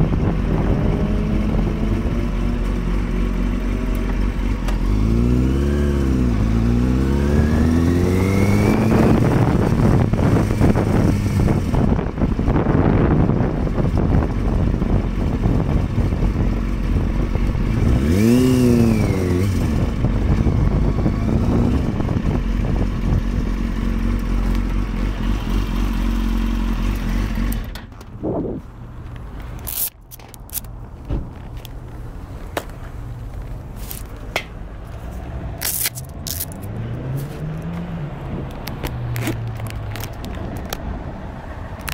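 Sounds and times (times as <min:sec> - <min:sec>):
motorcycle engine revving: 0:00.0 - 0:28.6.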